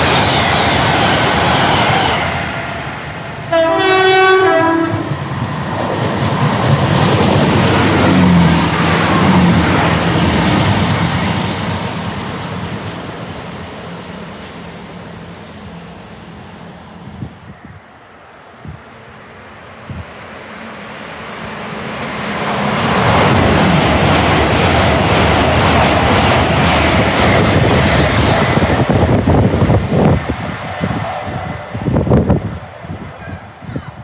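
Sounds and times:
train rumbling past: 0:00.0 - 0:34.0
two-note train horn: 0:03.5 - 0:05.2.

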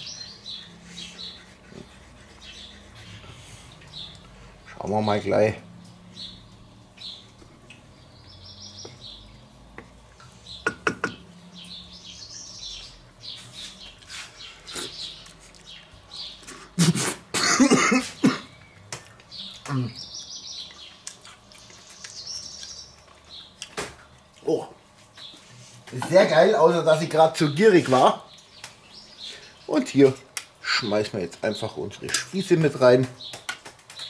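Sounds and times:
birds chirping: 0:00.0 - 0:34.0
man coughing and sputtering: 0:16.7 - 0:18.6.

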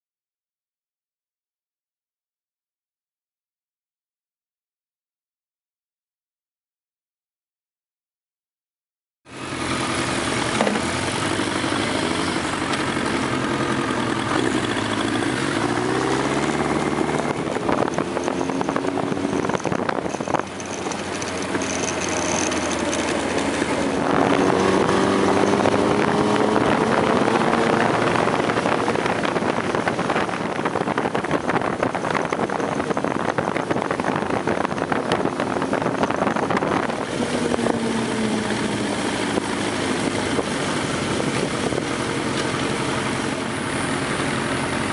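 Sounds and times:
motorcycle engine running: 0:09.3 - 0:44.9
wind noise: 0:10.5 - 0:44.9.

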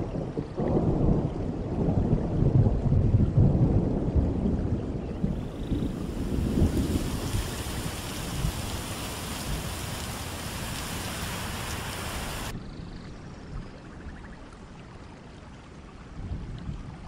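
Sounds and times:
waterfall rushing: 0:05.2 - 0:12.5.

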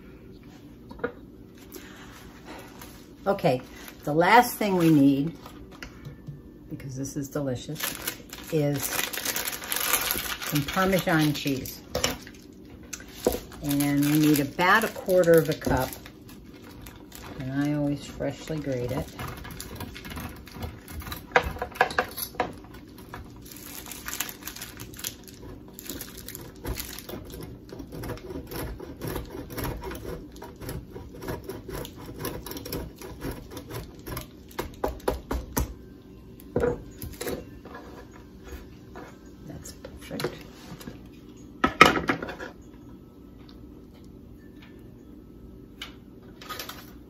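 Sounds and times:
cheese grating rasping scrapes: 0:25.3 - 0:34.2.

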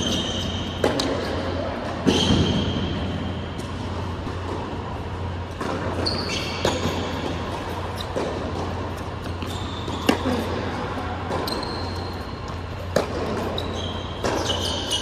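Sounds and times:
shoe squeaks on court: 0:00.0 - 0:01.1, 0:02.0 - 0:02.9, 0:05.9 - 0:08.2, 0:09.0 - 0:10.4, 0:11.3 - 0:15.0
steady low hum: 0:00.0 - 0:15.0
tennis ball struck and bouncing: 0:12.8 - 0:13.6, 0:14.2 - 0:14.8.

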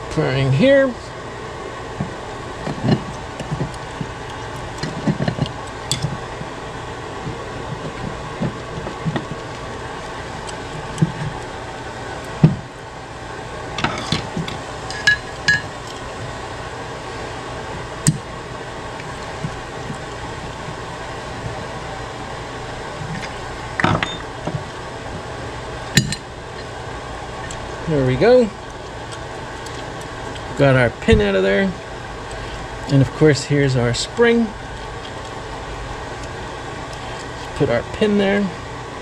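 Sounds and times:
steady background hum: 0:00.0 - 0:39.0
tools tapping on metal parts: 0:13.8 - 0:15.7.

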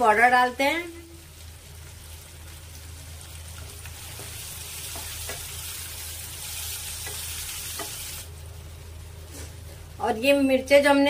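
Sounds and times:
potato slices sizzling in oil: 0:00.0 - 0:11.0
spatula tapping pan: 0:03.6 - 0:05.6, 0:07.0 - 0:08.0.

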